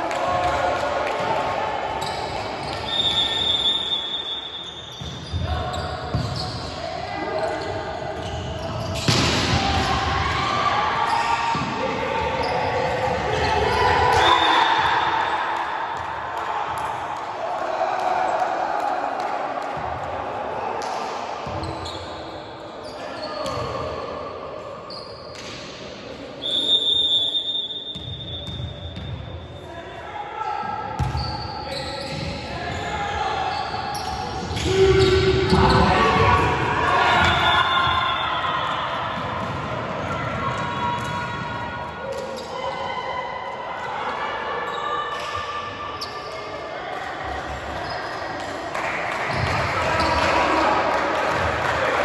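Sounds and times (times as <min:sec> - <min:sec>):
murmur of players moving: 0:00.0 - 0:52.0
referee's whistle: 0:02.0 - 0:06.8, 0:14.1 - 0:14.9, 0:26.4 - 0:28.9, 0:37.1 - 0:38.8.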